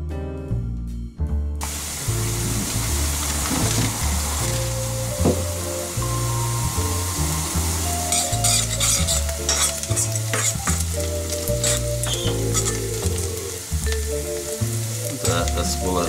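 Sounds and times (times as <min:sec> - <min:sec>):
background music with low notes: 0:00.0 - 0:16.0
onion sizzling in oil: 0:01.6 - 0:16.0
metal spoon scraping a pot: 0:08.0 - 0:10.9, 0:11.5 - 0:13.0.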